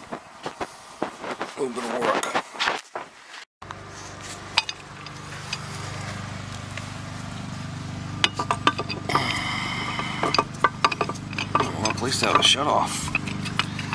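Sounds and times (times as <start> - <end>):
steady low hum: 3.6 - 13.9.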